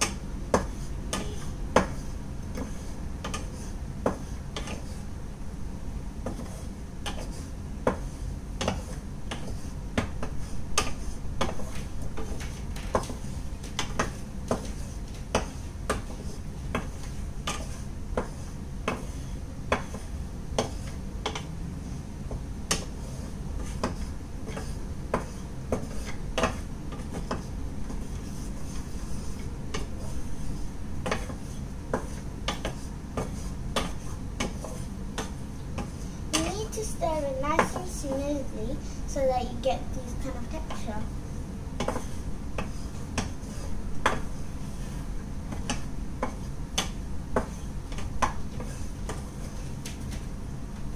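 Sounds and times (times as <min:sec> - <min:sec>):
wooden spatula scraping frying pan: 0:00.6 - 0:05.1, 0:06.3 - 0:21.0.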